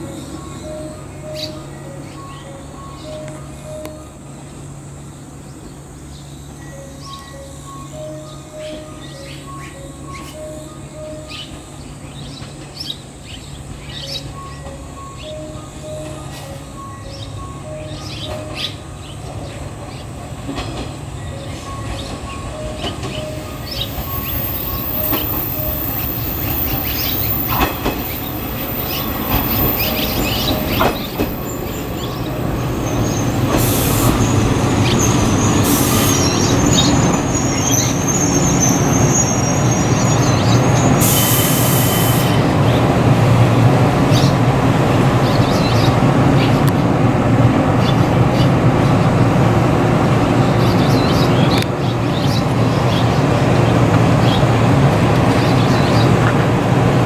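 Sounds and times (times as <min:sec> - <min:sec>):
electric train arriving: 0:00.0 - 0:57.0
wheels clicking over rail joints: 0:06.8 - 0:39.1
wheel squeal: 0:32.8 - 0:42.4.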